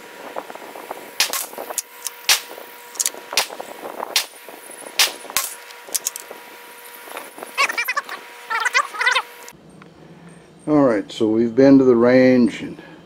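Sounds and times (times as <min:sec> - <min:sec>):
faint steady hum: 0:00.0 - 0:13.0
gunshots cracking: 0:01.2 - 0:06.2.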